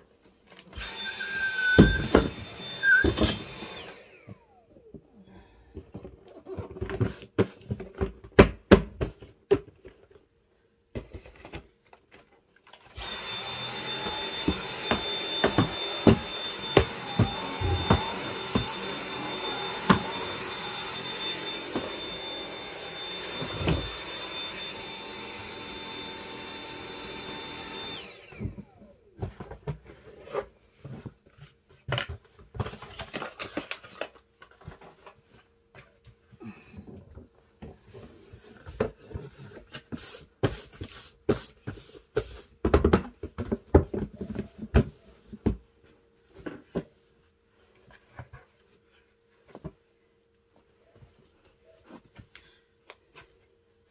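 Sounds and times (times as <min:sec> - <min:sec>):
vacuum cleaner motor whining: 0:00.5 - 0:05.1, 0:12.8 - 0:29.7.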